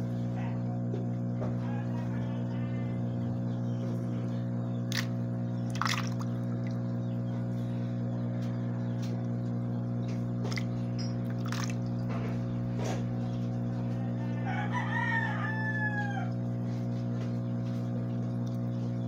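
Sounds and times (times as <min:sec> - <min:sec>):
steady low hum: 0:00.0 - 0:19.0
rooster crowing: 0:01.4 - 0:03.5, 0:13.8 - 0:16.9.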